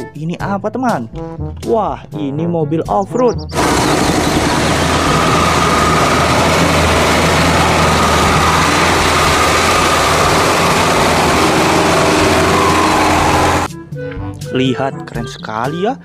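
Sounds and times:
truck engine running hard: 0:03.5 - 0:13.7.

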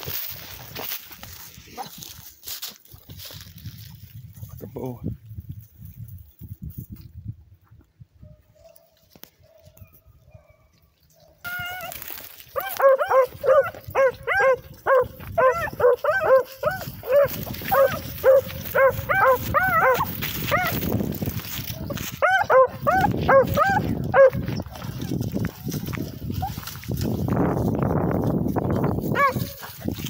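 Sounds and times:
rustle of brush: 0:00.0 - 0:04.5, 0:11.5 - 0:13.9, 0:14.6 - 0:23.9, 0:24.5 - 0:30.0
dog barking rapidly: 0:12.6 - 0:20.8, 0:21.8 - 0:25.0, 0:29.1 - 0:29.7.

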